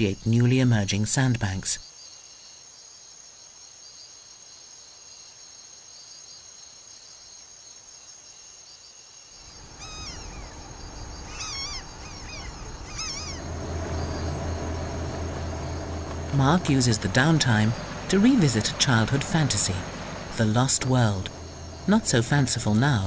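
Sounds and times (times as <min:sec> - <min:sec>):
rising and falling bird calls: 0:09.4 - 0:22.7
boat engine humming: 0:09.4 - 0:23.0.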